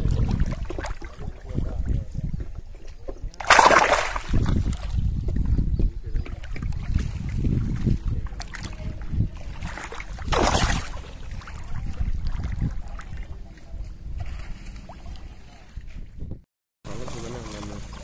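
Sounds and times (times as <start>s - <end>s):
water sloshing and lapping: 0.0s - 16.3s, 16.9s - 18.0s
wind rumble on microphone: 0.0s - 16.5s
loud water splash: 3.4s - 4.9s, 9.5s - 12.6s.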